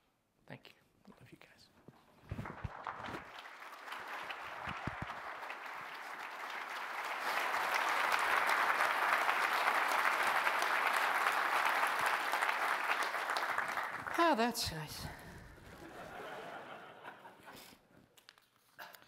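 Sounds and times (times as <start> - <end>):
audience applause: 2.3 - 14.4.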